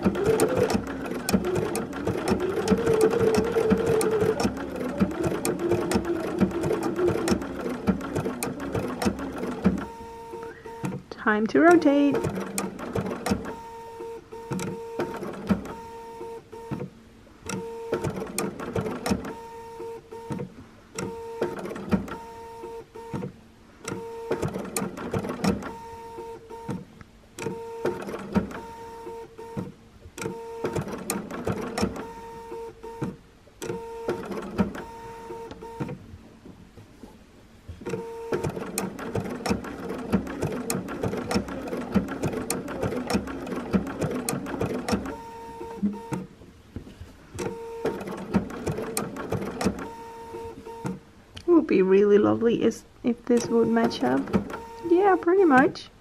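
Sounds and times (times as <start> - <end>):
sewing machine running: 0.0 - 10.9, 11.7 - 13.7, 30.3 - 32.5, 33.7 - 35.8, 37.9 - 46.2, 47.4 - 50.8, 53.4 - 55.7.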